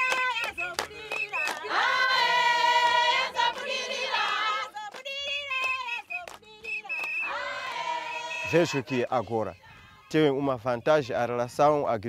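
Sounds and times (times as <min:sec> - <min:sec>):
handclaps: 0:00.0 - 0:01.7, 0:02.8 - 0:07.8
women singing together: 0:00.0 - 0:10.0.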